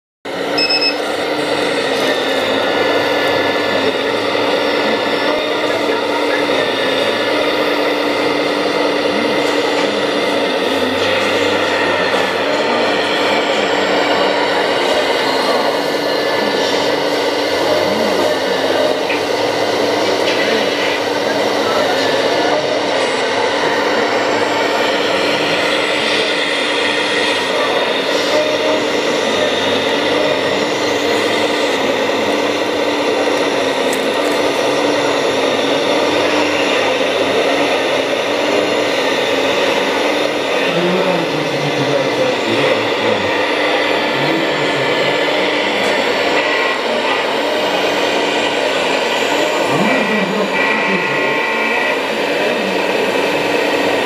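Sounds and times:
model excavator hydraulic whine: 0:00.3 - 0:54.0.

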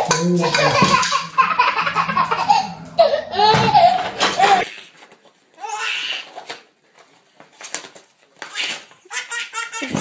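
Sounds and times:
low room hum: 0:00.0 - 0:05.4.

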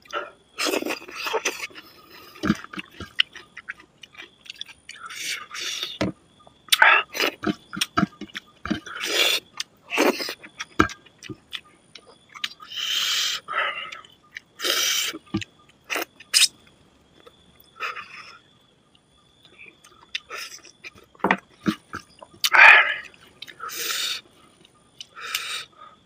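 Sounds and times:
person chewing loudly: 0:00.0 - 0:06.0, 0:06.6 - 0:12.6, 0:19.4 - 0:25.7.

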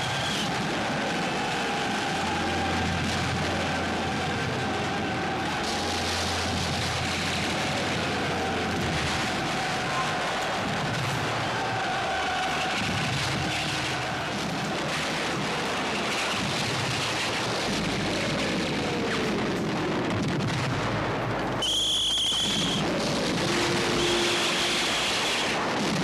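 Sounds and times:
slow falling whistles: 0:00.0 - 0:00.4, 0:21.6 - 0:22.8
continuous rumbling roar: 0:00.0 - 0:26.0.

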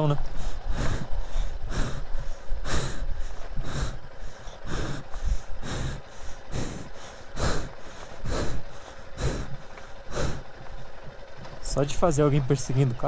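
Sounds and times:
man breathing heavily: 0:00.0 - 0:11.4.

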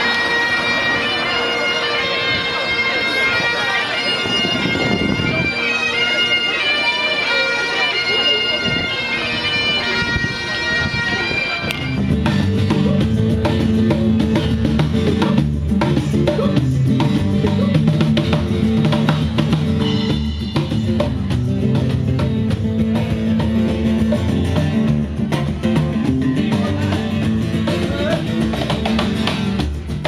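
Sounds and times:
sustained guitar chords: 0:00.0 - 0:30.0
drum kit beat: 0:11.9 - 0:30.0.

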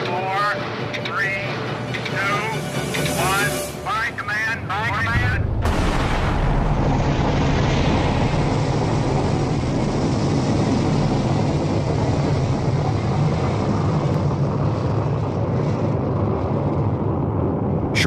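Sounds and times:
rocket engine roaring: 0:00.0 - 0:18.0.

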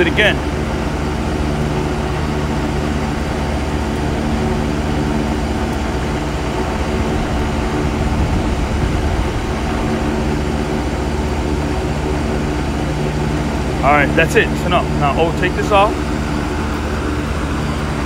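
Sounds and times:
exhaust fan air rush: 0:00.0 - 0:18.0
hvac units droning: 0:00.0 - 0:18.0.

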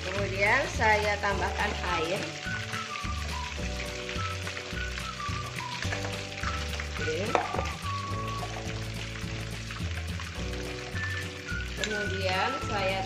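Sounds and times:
vegetables sizzling in frying pan: 0:00.0 - 0:13.0
water pouring into pan: 0:00.0 - 0:13.0.

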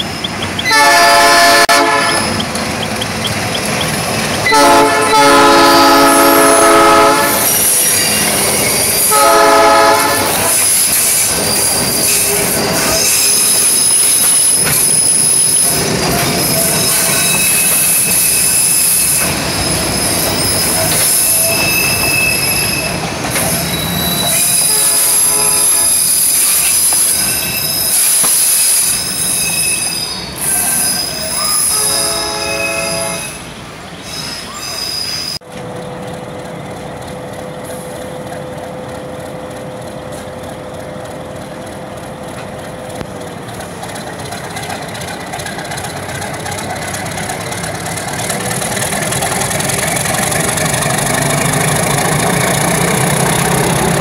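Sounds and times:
train wheels squealing on rails: 0:00.0 - 0:36.9, 0:37.5 - 0:54.0
locomotive air horn blasts: 0:00.7 - 0:02.4, 0:04.5 - 0:07.5, 0:09.1 - 0:10.6, 0:24.4 - 0:26.3, 0:31.6 - 0:33.4.

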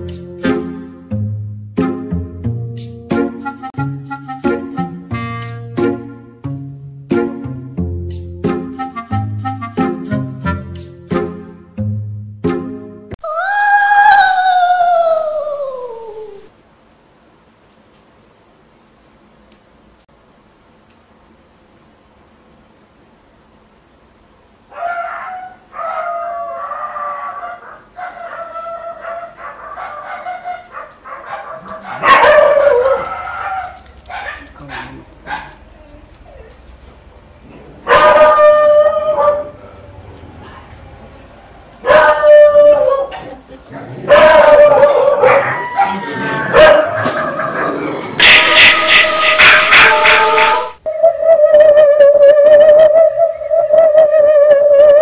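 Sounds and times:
dog howling: 0:13.2 - 0:16.5, 0:24.7 - 0:36.6, 0:37.6 - 0:40.7, 0:41.8 - 0:55.0
dog whining and yelping: 0:27.0 - 0:36.6.

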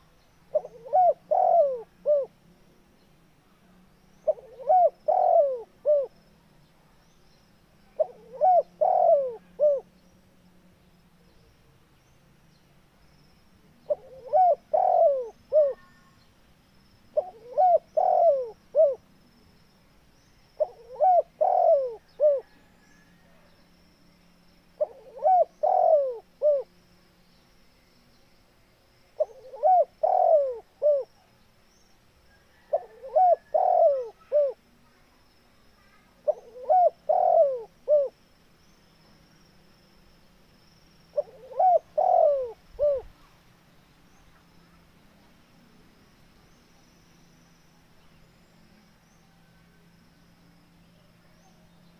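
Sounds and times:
dove cooing: 0:00.5 - 0:02.4, 0:04.2 - 0:06.2, 0:08.0 - 0:09.9, 0:13.8 - 0:16.0, 0:17.2 - 0:19.1, 0:20.6 - 0:22.8, 0:24.8 - 0:26.7, 0:29.2 - 0:31.1, 0:32.5 - 0:34.6, 0:36.2 - 0:38.2, 0:41.1 - 0:43.2.

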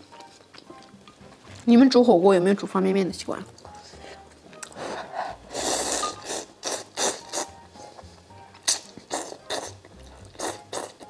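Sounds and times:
person slurping noodles: 0:04.6 - 0:07.9, 0:08.6 - 0:11.0.

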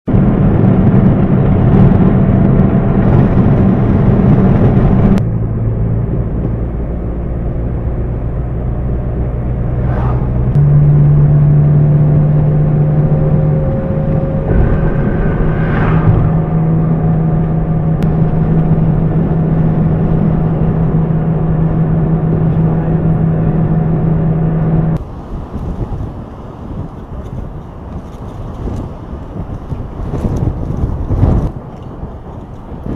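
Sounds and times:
vehicle engine running: 0:00.1 - 0:32.9
rushing noise: 0:09.5 - 0:22.2.

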